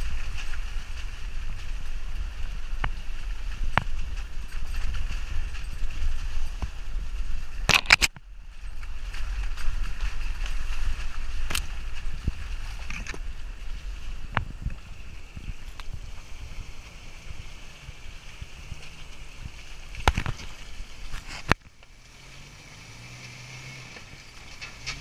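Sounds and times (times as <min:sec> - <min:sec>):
knocks and clacks over rocks: 0:00.0 - 0:22.0, 0:23.2 - 0:25.0
vehicle engine low rumble: 0:00.0 - 0:25.0.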